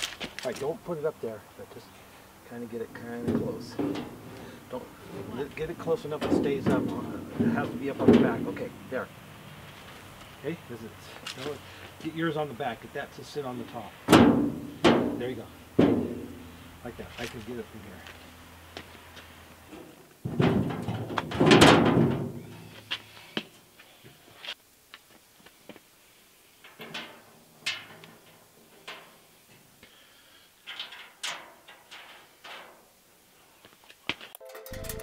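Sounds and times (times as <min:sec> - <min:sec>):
light metal knocks and clicks: 0:03.1 - 0:08.7
metal clattering and knocking: 0:03.1 - 0:08.7, 0:14.1 - 0:16.5, 0:20.2 - 0:22.6.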